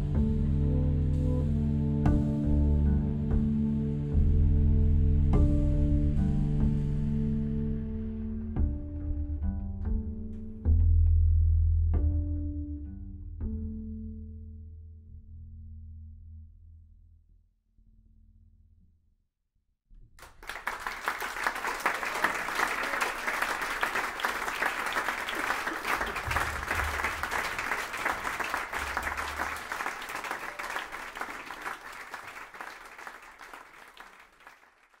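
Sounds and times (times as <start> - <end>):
audience applauding: 20.2 - 35.0.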